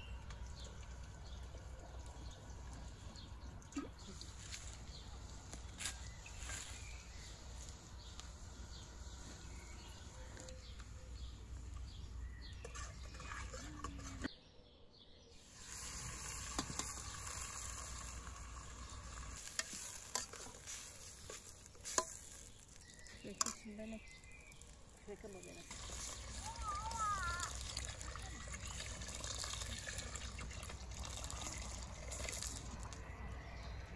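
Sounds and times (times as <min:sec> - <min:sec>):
rice sizzling in oil: 0:04.2 - 0:13.6, 0:15.4 - 0:33.1
metal spoon stirring in pot: 0:09.4 - 0:14.3, 0:15.6 - 0:26.4.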